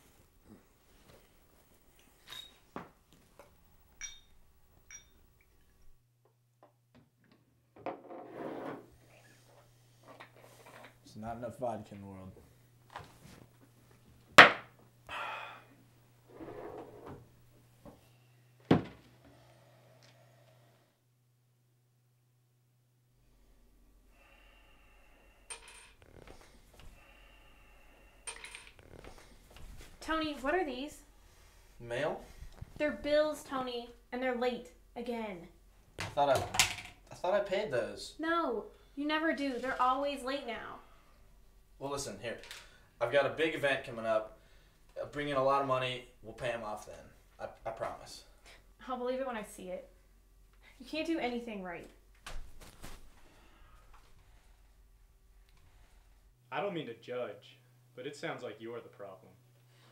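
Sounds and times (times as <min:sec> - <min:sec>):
glass clinks while pouring: 0:04.0 - 0:05.2
low steady hum: 0:08.9 - 0:59.9.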